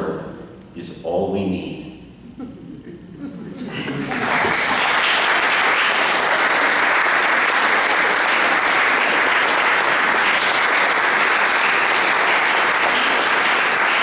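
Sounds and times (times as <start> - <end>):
audience applauding: 3.6 - 14.0.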